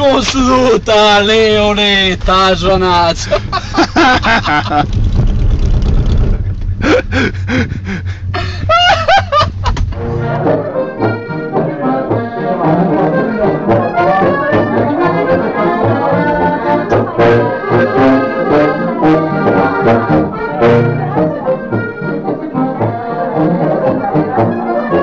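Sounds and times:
low wind rumble: 0:00.0 - 0:22.5
man laughing: 0:03.1 - 0:05.0, 0:06.7 - 0:09.9
folk music with horn and accordion: 0:09.9 - 0:25.0.

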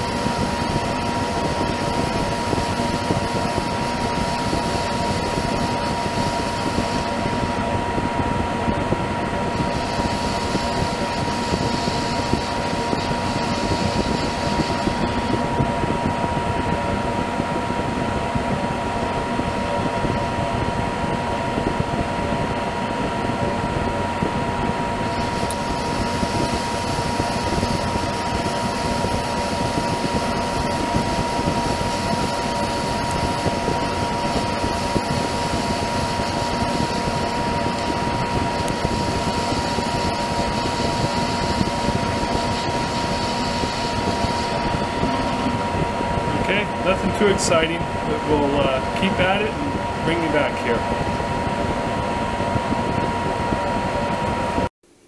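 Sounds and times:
metal lathe whining: 0:00.0 - 0:17.4, 0:24.8 - 0:51.4.

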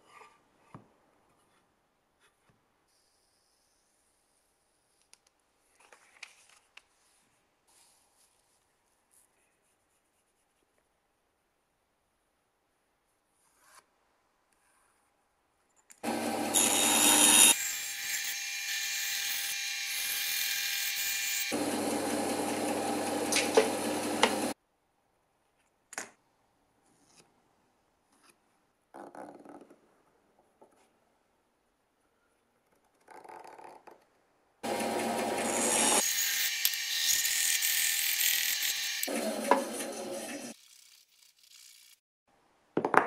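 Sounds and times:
bandsaw cutting wood: 0:16.0 - 0:24.6, 0:34.6 - 0:41.0.

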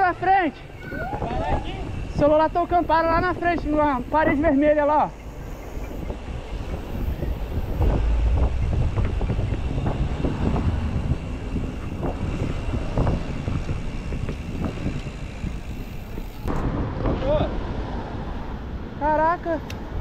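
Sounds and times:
low road rumble: 0:00.0 - 0:20.0
wind buffeting microphone: 0:00.0 - 0:20.0
bicycle rattles and knocks: 0:05.2 - 0:17.5.

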